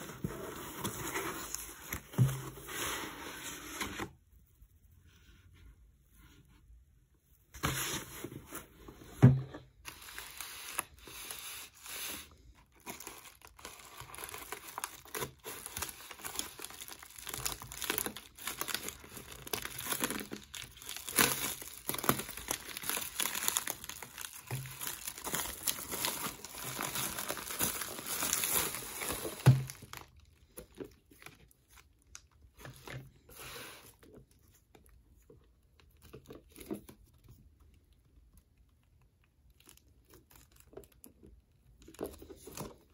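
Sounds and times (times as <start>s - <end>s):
plastic wrap crinkling and tearing: 9.9s - 35.0s, 39.5s - 42.9s.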